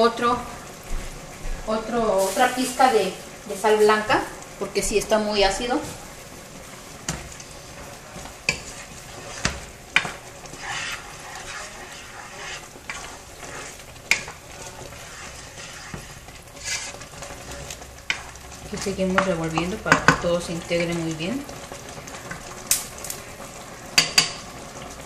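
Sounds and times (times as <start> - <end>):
sauce sizzling in a pot: 0.0 - 25.0
wooden spoon knocking pot: 18.1 - 20.3.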